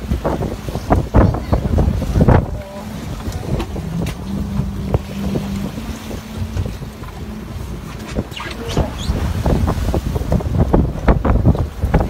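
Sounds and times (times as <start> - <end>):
low boat engine hum: 0.0 - 12.0
sea noise: 0.0 - 12.0
wind buffeting microphone: 0.0 - 12.0.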